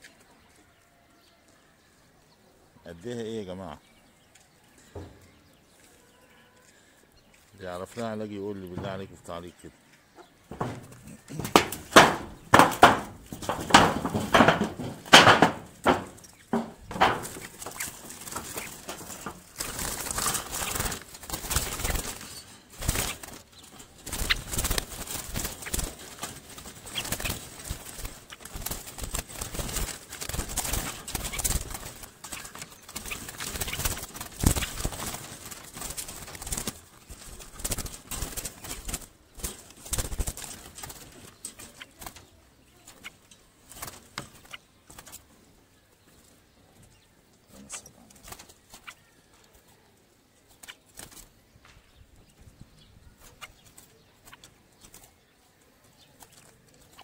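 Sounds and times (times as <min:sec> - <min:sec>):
birds fluttering wings: 0:04.8 - 0:57.0
pigeons cooing: 0:08.2 - 0:43.2
rattling of wire cage: 0:10.4 - 0:45.2.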